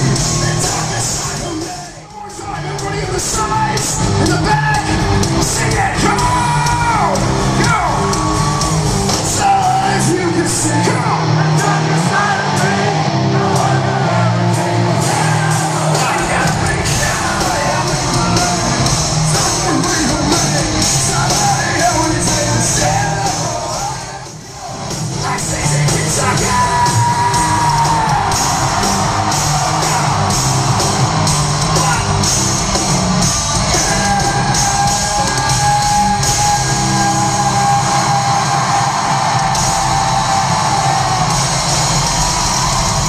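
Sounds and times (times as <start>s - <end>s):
bass guitar: 0.0s - 43.0s
crowd yelling along: 0.0s - 43.0s
hard rock band playing live: 0.0s - 43.0s
person singing: 25.2s - 28.4s.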